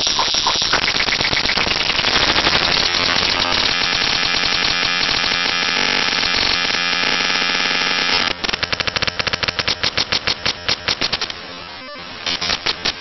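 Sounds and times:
rapid stutter of short pulses: 0.0s - 6.9s
buzzing digital noise: 0.0s - 13.0s.

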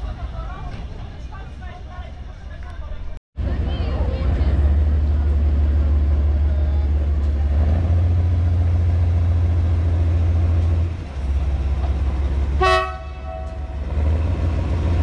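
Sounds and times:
diesel locomotive engine drone: 0.0s - 15.0s.

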